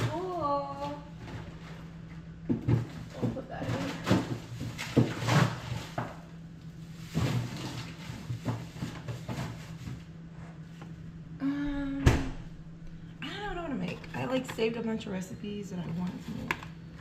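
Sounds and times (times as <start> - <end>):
packaging rustling and knocking: 2.4 - 6.2.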